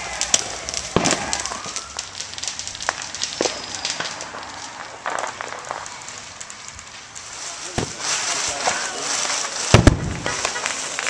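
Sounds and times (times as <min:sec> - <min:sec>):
firework fountain crackling pops: 0:00.0 - 0:11.0
firework bang: 0:00.2 - 0:01.8, 0:07.7 - 0:08.8, 0:09.7 - 0:10.9.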